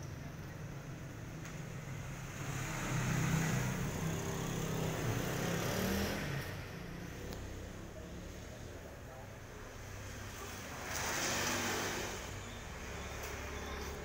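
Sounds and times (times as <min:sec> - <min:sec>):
vehicle engine passing by: 0:02.0 - 0:08.7, 0:09.8 - 0:14.0.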